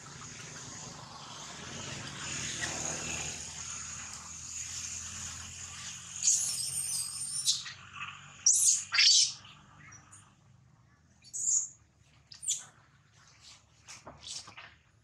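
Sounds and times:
infant monkey squealing: 6.2s - 7.8s, 8.5s - 9.4s.

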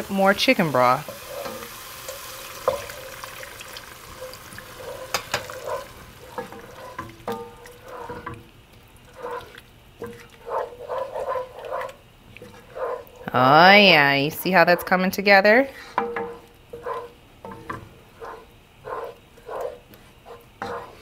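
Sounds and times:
wooden spoon scraping pot: 0.0s - 3.3s, 4.1s - 13.4s, 15.7s - 21.0s
broth hissing in hot pot: 0.0s - 9.7s.

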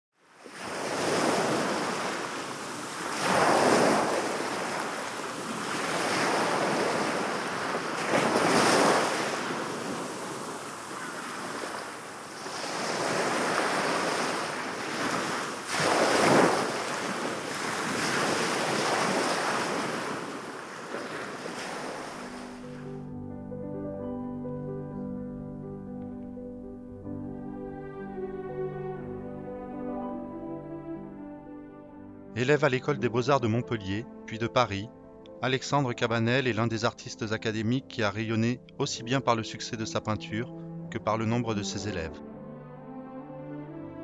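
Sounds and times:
sea waves washing on shore: 0.2s - 23.0s.

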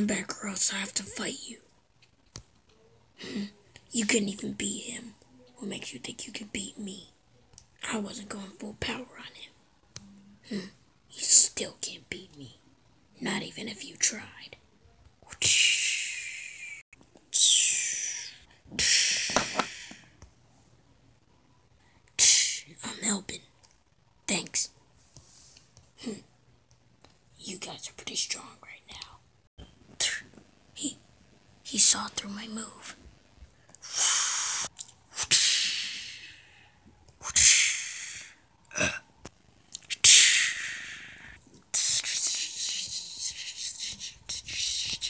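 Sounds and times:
person making hissing mouth sounds: 15.2s - 20.2s, 22.2s - 22.7s, 33.8s - 39.0s, 39.8s - 45.0s
mouth-made hissing blasts: 33.8s - 36.3s.

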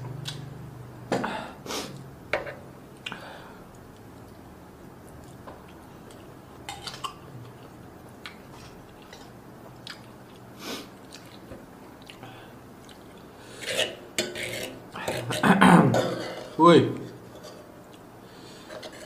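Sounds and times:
low steady hum: 0.0s - 19.0s
wet chewing mouth smacks: 9.8s - 12.2s.

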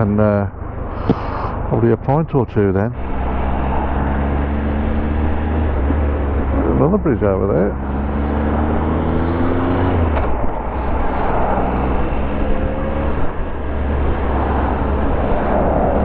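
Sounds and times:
wind noise on microphone: 8.5s - 16.0s.

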